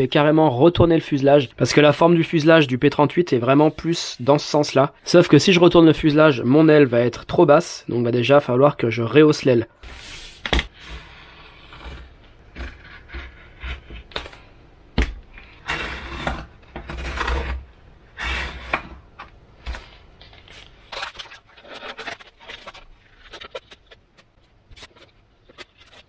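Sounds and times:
foam scraping and rubbing on table: 15.5s - 19.0s.

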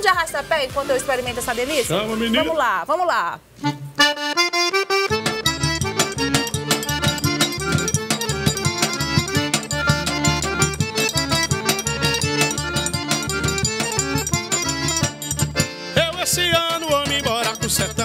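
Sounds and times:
drum fast steady beat: 0.0s - 2.6s, 5.2s - 18.0s
accordion melody: 3.6s - 18.0s.

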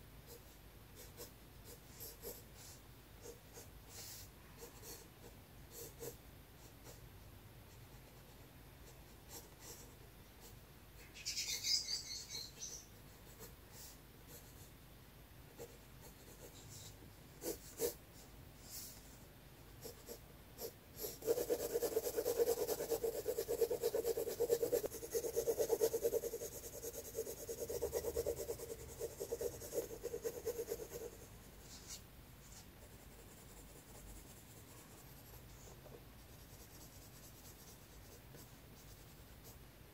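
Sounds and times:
pencil scratching on paper: 0.3s - 7.0s, 15.6s - 18.0s, 19.8s - 39.6s.

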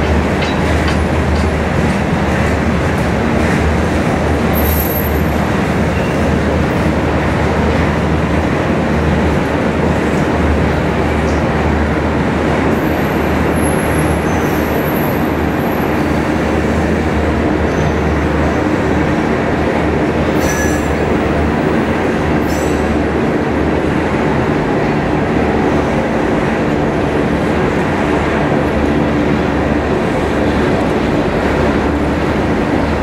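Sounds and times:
freight train wheels rumbling on rail: 0.0s - 33.0s.

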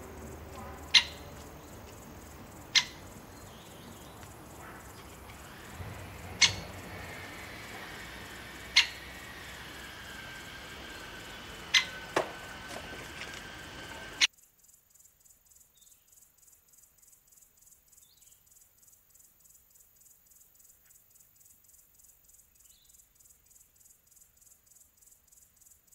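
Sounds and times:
woodpecker pecking at feeder: 0.0s - 14.3s
insect chirping: 0.0s - 25.9s
outdoor ambience with high tones: 0.0s - 25.9s.

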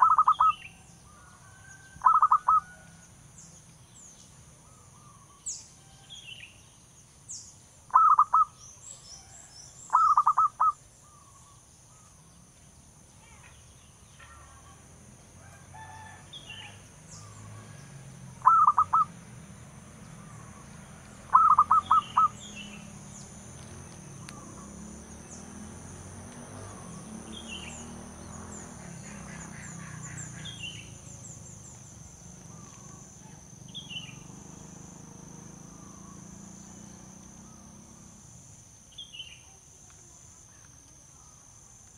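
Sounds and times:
dove cooing: 0.0s - 0.5s, 2.0s - 2.8s, 7.9s - 8.5s, 9.9s - 10.8s, 18.4s - 19.1s, 21.3s - 22.4s.

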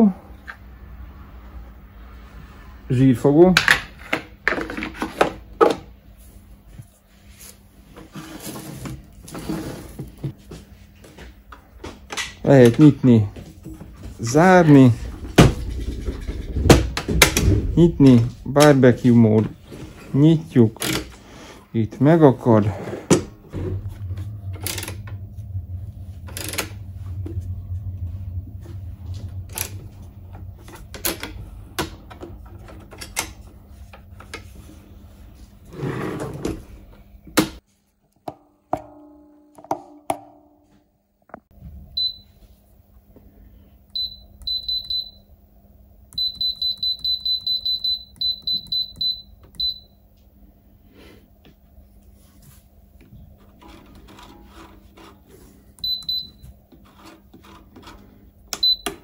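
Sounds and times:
low hum: 12.1s - 37.6s.

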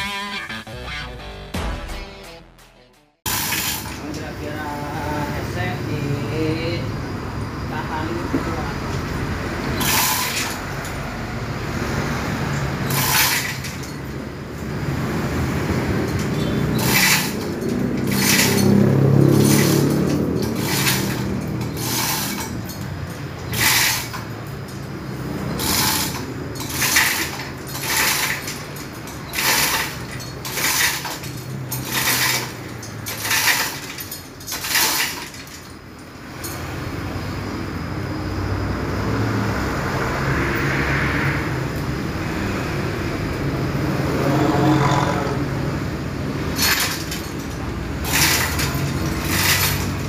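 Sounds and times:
hoist chain rattling and clanking: 3.3s - 4.6s, 8.0s - 37.7s, 42.5s - 50.0s.

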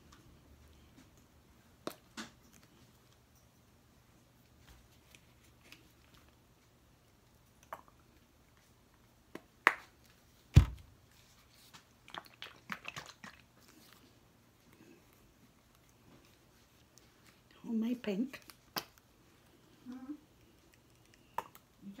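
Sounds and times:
small crackles: 0.0s - 10.3s.

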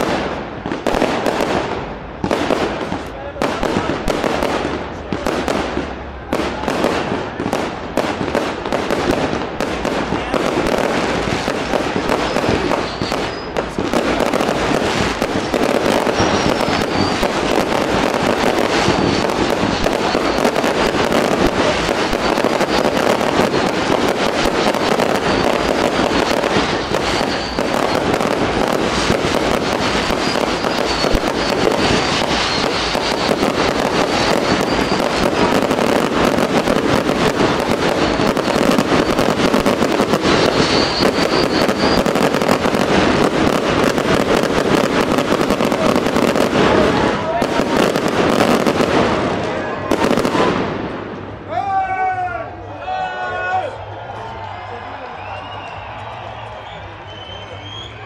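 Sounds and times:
fireworks bangs and crackling: 0.0s - 51.5s.

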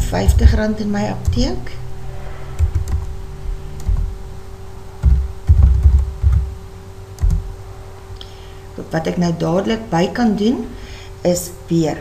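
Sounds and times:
faint electrical hum: 0.0s - 12.0s
keyboard typing: 2.6s - 3.1s, 3.8s - 4.2s, 5.0s - 6.6s, 7.2s - 7.5s
dull low thuds: 5.0s - 6.6s.

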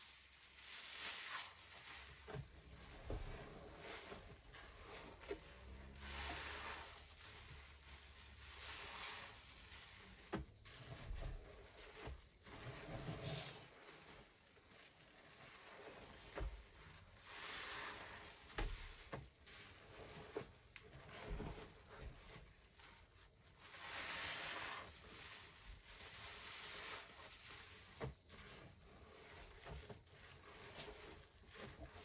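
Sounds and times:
wet sponges squishing: 0.0s - 32.0s
foam hissing: 5.6s - 10.2s, 23.6s - 27.9s.

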